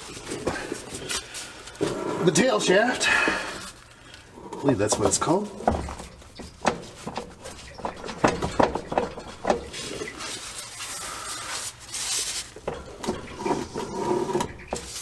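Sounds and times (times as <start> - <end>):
metal scraping and sliding: 4.5 - 15.0
metal knocks and clicks: 4.8 - 10.2, 12.6 - 15.0.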